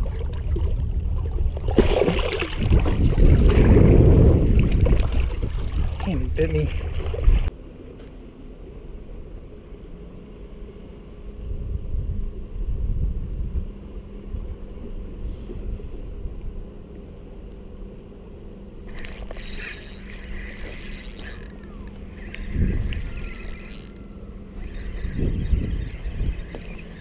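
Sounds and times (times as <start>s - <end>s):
wind on microphone: 0.0s - 7.5s, 11.2s - 16.8s, 18.9s - 27.0s
steady low hum: 0.0s - 27.0s
fishing reel clicking whir: 18.8s - 27.0s.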